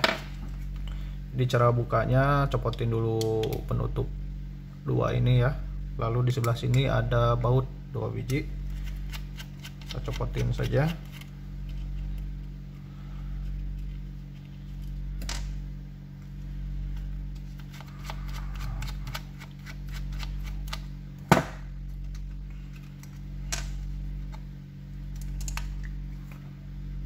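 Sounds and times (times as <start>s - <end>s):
low hum: 0.0s - 27.0s.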